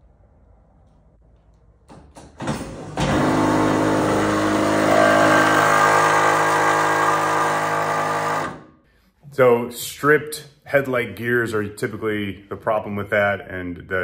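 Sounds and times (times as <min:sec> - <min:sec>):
headlight motor humming and rasping: 0:03.0 - 0:08.6.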